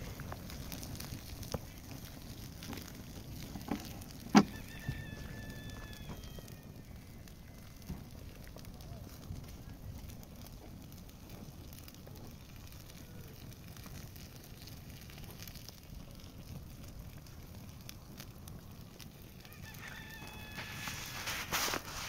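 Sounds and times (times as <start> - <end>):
wood fire crackling: 0.0 - 22.0
fowl call: 4.4 - 7.1.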